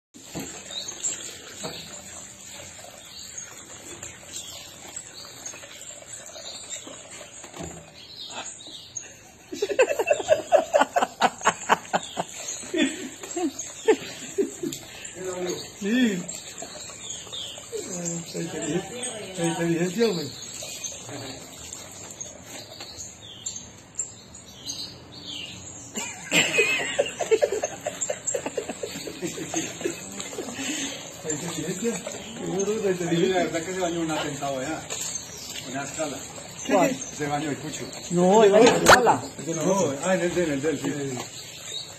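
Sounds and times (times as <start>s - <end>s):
water splashing and trickling: 0.1s - 41.9s
rhythmic laughter: 9.5s - 15.0s, 26.0s - 31.0s
parrot laughing: 26.0s - 30.1s.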